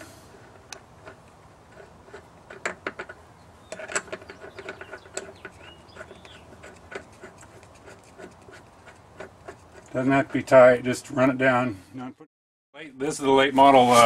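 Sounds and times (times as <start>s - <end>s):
metallic clicks and knocks: 0.7s - 7.0s.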